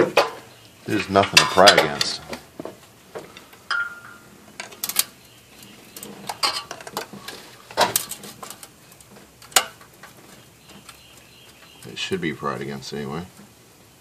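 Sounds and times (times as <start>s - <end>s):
metal tools knocking on metal: 6.3s - 7.1s.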